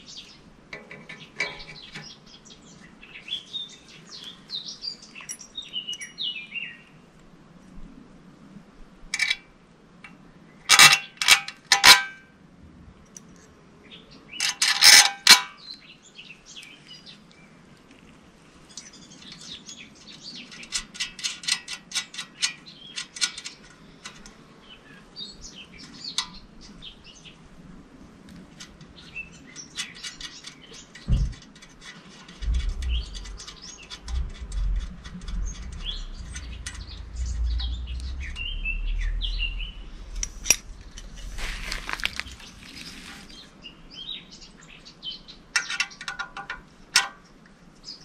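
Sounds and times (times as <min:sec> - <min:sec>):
birds chirping: 0:00.0 - 0:07.0, 0:28.8 - 0:46.1
metal tools clinking: 0:05.1 - 0:06.3, 0:14.4 - 0:15.5, 0:40.1 - 0:43.3.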